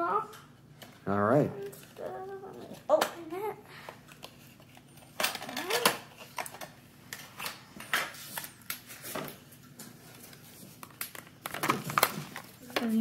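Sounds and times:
packaging rustling and crinkling: 0:04.0 - 0:13.0.

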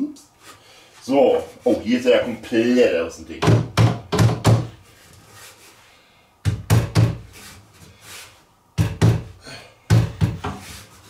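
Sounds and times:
sharp knocks on wood: 0:03.4 - 0:04.7, 0:06.4 - 0:07.3, 0:08.8 - 0:09.3, 0:09.9 - 0:10.6.

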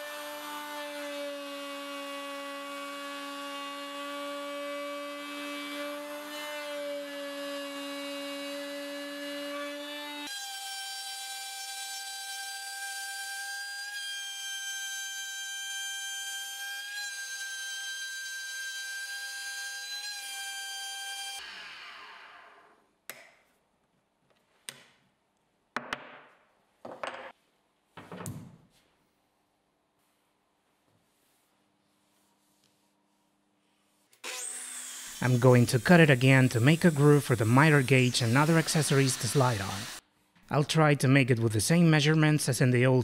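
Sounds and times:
rotary tool cutting with whine: 0:34.2 - 0:40.0.

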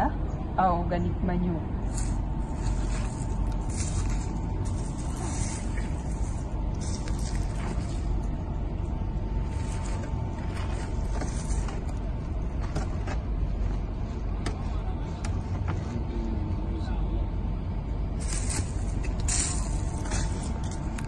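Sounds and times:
steady low rumble: 0:00.0 - 0:21.0
spade scraping in metal wheelbarrow: 0:01.9 - 0:08.0
rustles: 0:01.9 - 0:08.4, 0:09.4 - 0:14.4, 0:18.2 - 0:21.0.

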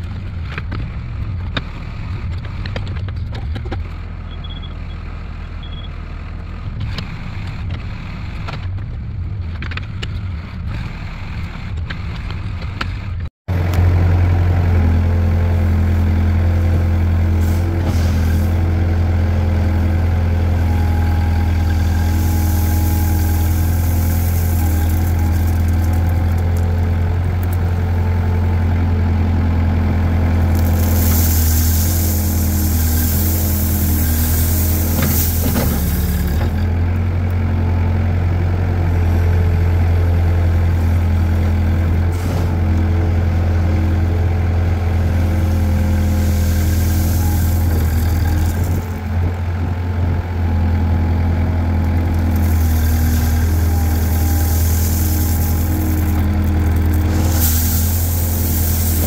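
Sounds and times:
diesel engine running: 0:00.0 - 0:59.0
gravel pouring from bucket: 0:21.4 - 0:27.7, 0:30.3 - 0:36.6, 0:45.6 - 0:49.0, 0:51.8 - 0:59.0.

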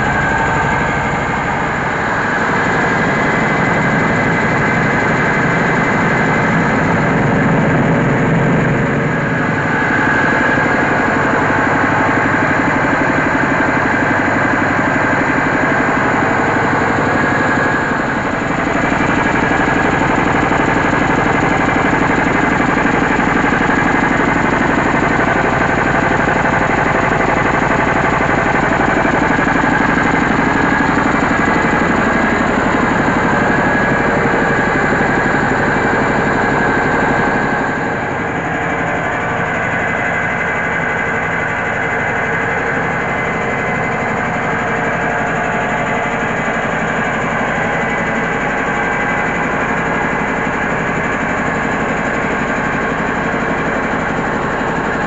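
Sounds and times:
diesel engine running: 0:00.0 - 0:55.0
milling machinery whine: 0:00.0 - 0:55.0.

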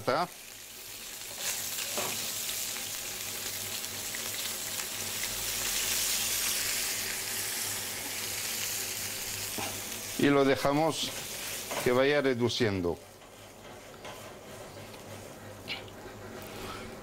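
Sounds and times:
sauce sizzling in a frying pan: 0:00.0 - 0:13.5.

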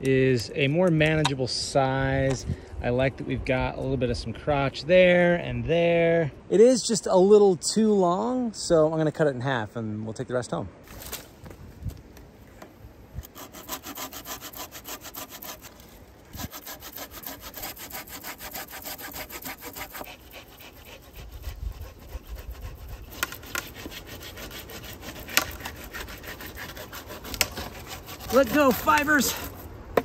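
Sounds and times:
hand saw cutting log: 0:13.2 - 0:30.0
sharp wood cracks: 0:25.1 - 0:30.0.

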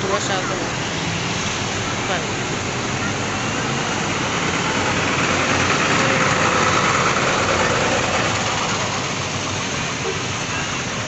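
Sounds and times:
bus diesel engine passing: 0:00.0 - 0:11.0.

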